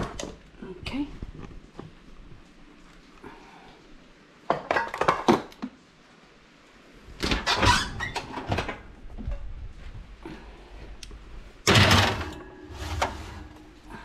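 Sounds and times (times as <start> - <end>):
oven door opening: 11.6 - 13.8
metal baking sheet clattering: 11.7 - 13.6.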